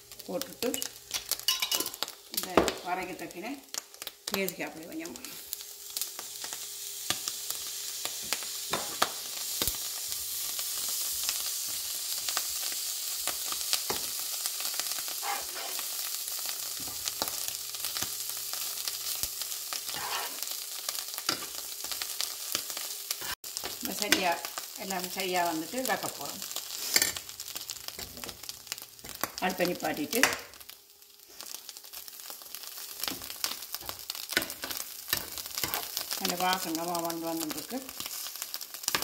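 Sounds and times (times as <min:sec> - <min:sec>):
food sizzling in a frying pan: 0:00.0 - 0:39.0
metal spoon scraping a pan: 0:15.1 - 0:15.9, 0:19.9 - 0:20.5, 0:26.7 - 0:27.2, 0:33.0 - 0:36.1.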